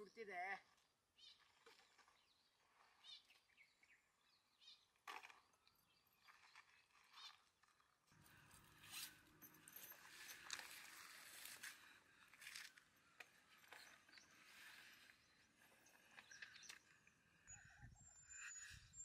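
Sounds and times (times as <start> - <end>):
faint rustles and clicks: 6.2 - 17.0.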